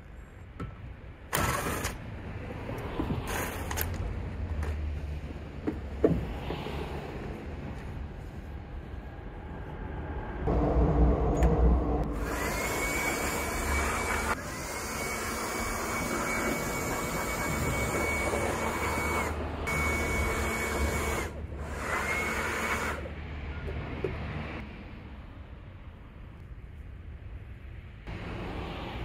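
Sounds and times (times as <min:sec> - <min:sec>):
low machine hum: 0:10.5 - 0:13.6
power tool motor whining: 0:12.2 - 0:23.1.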